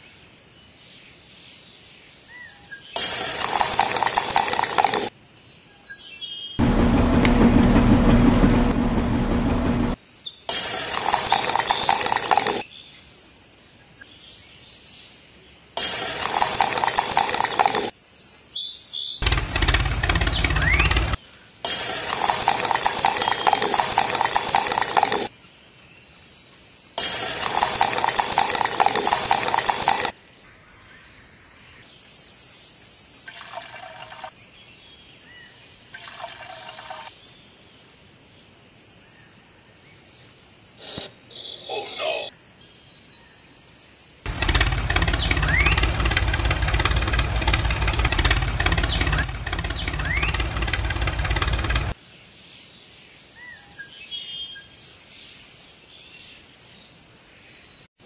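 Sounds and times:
small electric mixer motor: 3.0s - 5.1s, 15.8s - 17.9s, 19.2s - 25.3s, 27.0s - 30.1s, 44.3s - 52.0s.

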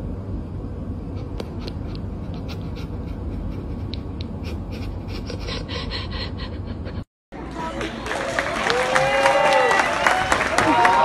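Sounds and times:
steady low rumble: 0.0s - 8.0s.

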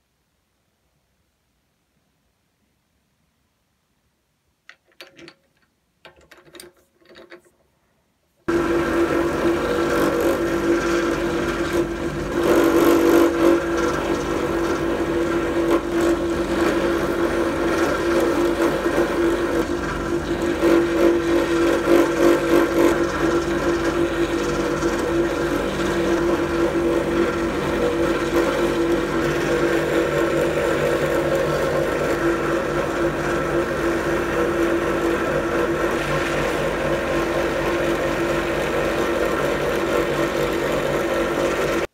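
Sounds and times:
drill press motor humming: 8.5s - 41.9s.

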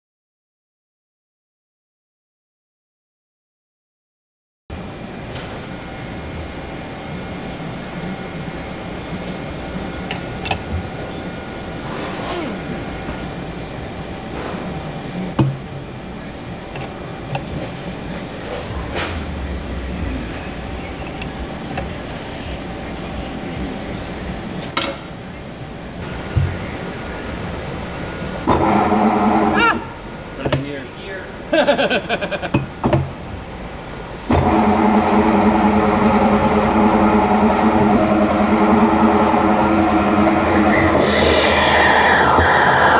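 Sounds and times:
lathe machine hum: 16.2s - 24.5s, 26.6s - 30.4s, 33.2s - 42.9s.

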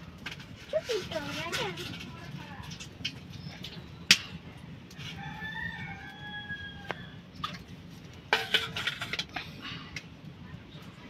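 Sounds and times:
rooster crowing: 5.1s - 7.2s.

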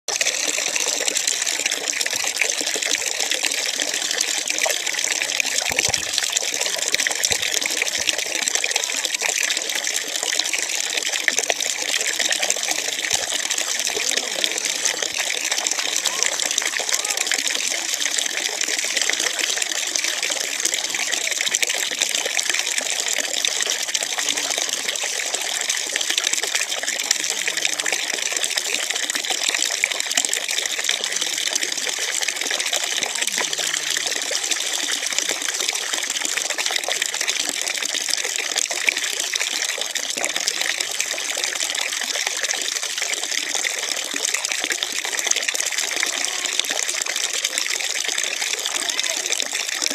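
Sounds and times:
water running from a tap: 0.1s - 49.9s
water splashing onto ground: 5.4s - 8.3s.

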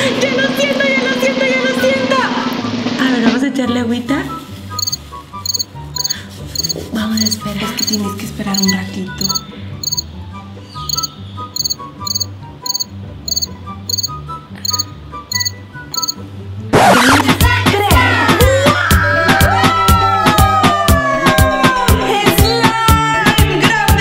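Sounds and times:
quiet background music: 0.0s - 24.0s
crickets chirping: 4.8s - 10.0s, 10.9s - 16.2s.

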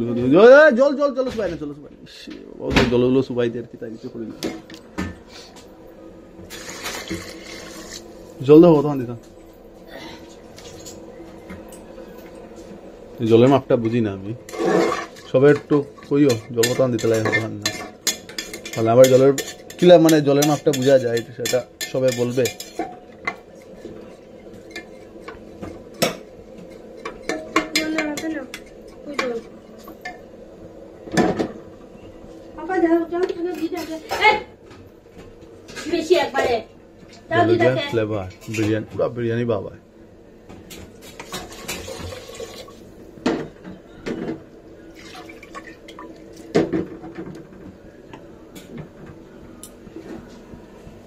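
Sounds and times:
spatula scraping and knocking pot: 13.8s - 30.2s.

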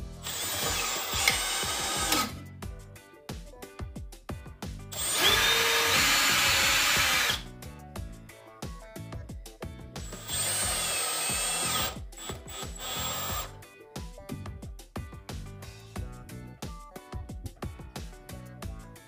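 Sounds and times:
rhythmic background music: 0.0s - 19.0s
power drill drilling into wood: 0.2s - 2.4s, 4.9s - 7.4s, 10.1s - 13.5s.

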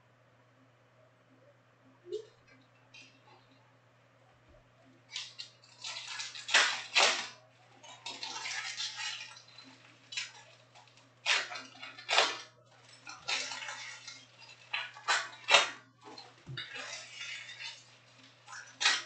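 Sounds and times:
foil wrapper crinkling: 5.1s - 19.0s.

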